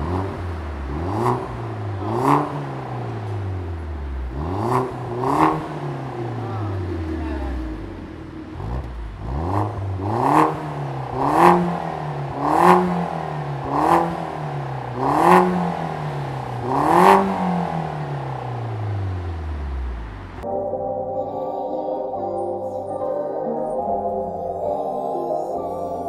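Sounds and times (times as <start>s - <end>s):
car engine idling: 0.0s - 20.5s
car engine revving: 0.0s - 20.5s.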